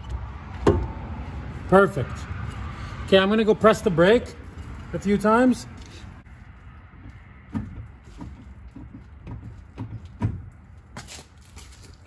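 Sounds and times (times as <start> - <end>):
brake pedal clunks and knocks: 7.0 - 10.6.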